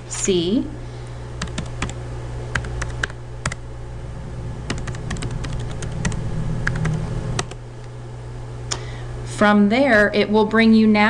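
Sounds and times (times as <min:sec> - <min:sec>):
steady low hum: 0:00.0 - 0:11.0
computer keyboard typing: 0:01.4 - 0:03.6, 0:04.7 - 0:07.6.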